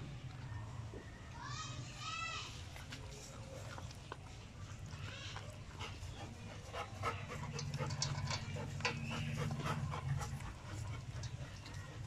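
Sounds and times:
dog crunching dry kibble: 2.6s - 12.0s.

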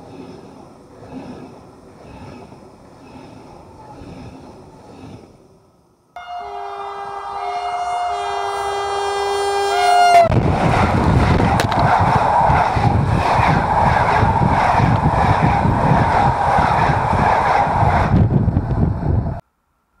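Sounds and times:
train horn chord: 6.2s - 10.4s
train wheels rumbling over rail: 7.2s - 19.4s.

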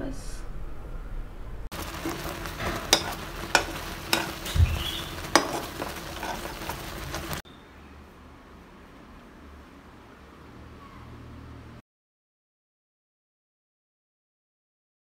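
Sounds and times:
porridge bubbling in a pan: 1.7s - 7.4s
spoon clinking against pan: 2.7s - 6.8s.

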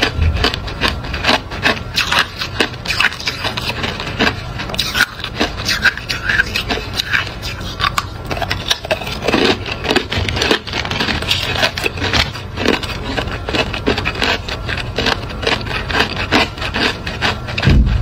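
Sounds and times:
ice being crunched and chewed: 0.0s - 18.0s
low thump: 17.6s - 18.0s.

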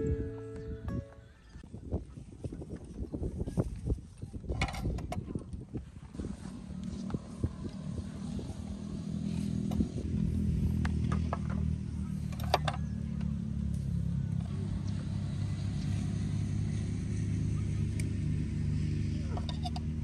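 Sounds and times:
engine humming: 0.0s - 1.6s, 6.0s - 20.0s.

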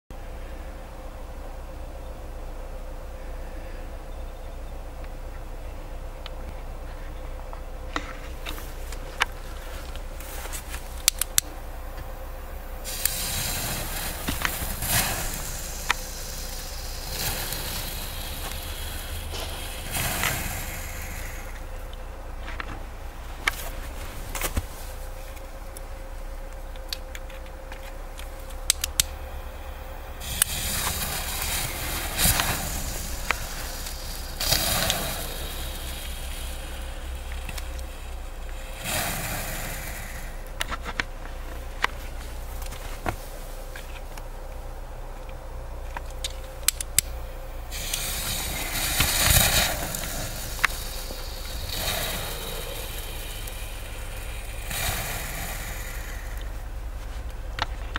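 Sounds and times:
firework fountain hissing: 12.5s - 21.9s, 28.9s - 40.8s, 47.0s - 57.0s
firework crackles and pops: 12.8s - 21.8s, 30.2s - 40.8s, 47.7s - 56.6s.

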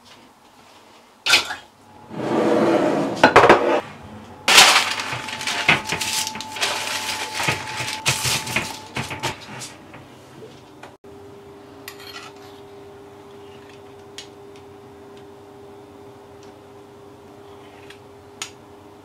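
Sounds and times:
baking parchment rustling: 4.5s - 10.7s.

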